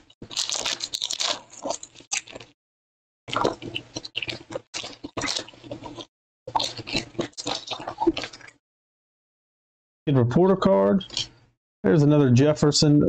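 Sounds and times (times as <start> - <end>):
foil wrappers crinkling and tearing: 0.2 - 2.5.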